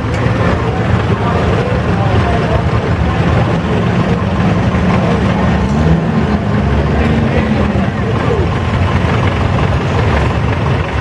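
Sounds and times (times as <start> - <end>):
tractor engines running slowly: 0.0 - 11.0.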